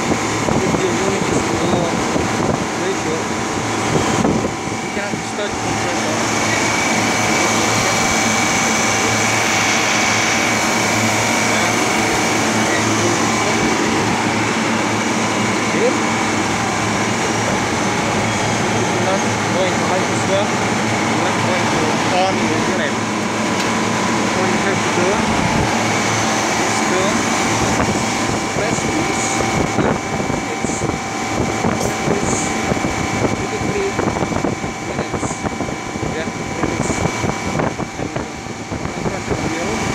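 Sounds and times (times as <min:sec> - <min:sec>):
compressor hum: 0:00.0 - 0:39.9
condenser fan rushing: 0:00.0 - 0:39.9.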